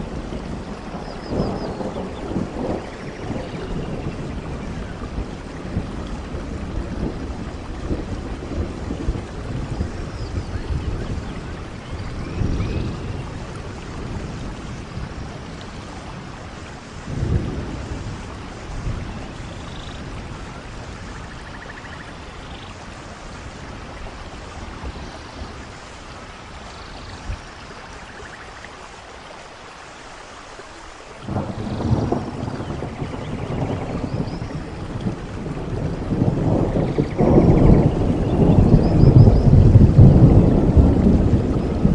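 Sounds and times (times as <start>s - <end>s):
rolls of thunder: 0.0s - 21.8s, 31.2s - 41.9s
rain falling on foliage: 0.0s - 41.9s.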